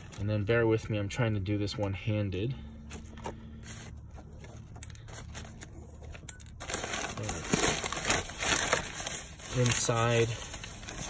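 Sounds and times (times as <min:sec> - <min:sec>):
nylon bag rustling: 0:02.9 - 0:11.0.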